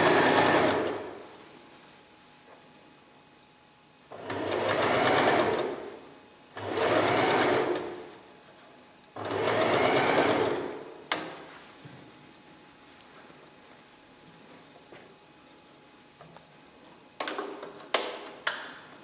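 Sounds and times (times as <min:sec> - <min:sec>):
sewing machine stitching: 0:00.0 - 0:01.2, 0:04.1 - 0:05.9, 0:06.6 - 0:08.0, 0:09.2 - 0:10.8.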